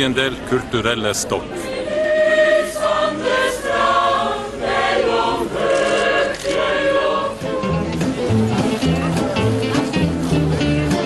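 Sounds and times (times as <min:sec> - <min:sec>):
mixed choir singing: 0:01.4 - 0:08.4.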